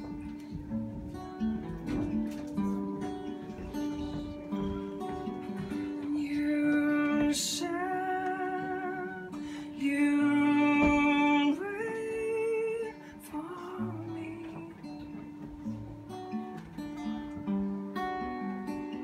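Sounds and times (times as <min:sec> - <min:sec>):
fiddle: 0:00.0 - 0:17.6
strummed acoustic guitar: 0:00.0 - 0:19.0
person singing with vibrato: 0:05.8 - 0:15.1.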